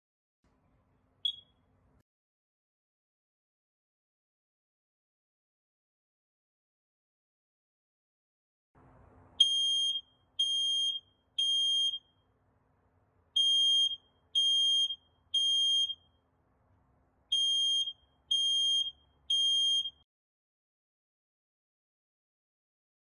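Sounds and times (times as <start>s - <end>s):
smoke alarm beeping: 1.2s - 1.6s, 9.4s - 12.2s, 13.4s - 16.2s, 17.3s - 20.0s.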